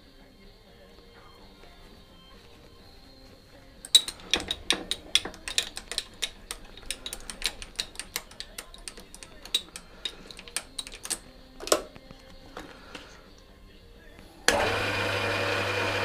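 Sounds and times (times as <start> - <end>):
metal lathe clicking and ticking: 3.8 - 11.9.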